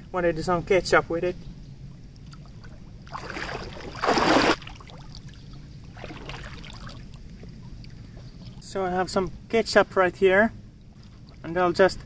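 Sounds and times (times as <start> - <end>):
wading through shallow water: 1.8 - 9.0, 10.6 - 12.0
water splash: 3.1 - 5.2, 6.0 - 7.1.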